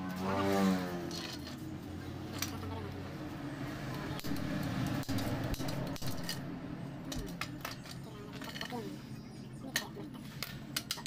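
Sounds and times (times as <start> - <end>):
steady low hum: 0.8 - 11.0
small metal parts clicking: 1.1 - 1.6, 2.3 - 2.7, 4.2 - 6.5, 7.1 - 8.9.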